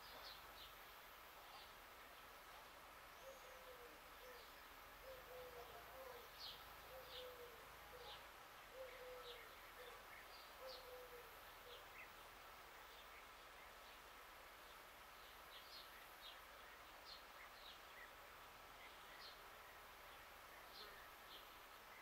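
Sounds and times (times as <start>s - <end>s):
small birds chirping: 0.0s - 22.0s
bird hooting call: 3.2s - 10.0s, 10.6s - 11.8s.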